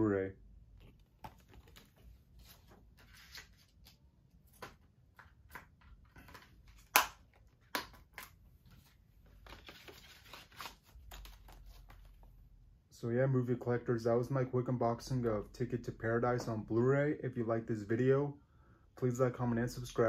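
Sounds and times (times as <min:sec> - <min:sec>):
packaging rustling: 0:00.8 - 0:03.9
plastic case clicks and snaps: 0:06.3 - 0:08.4.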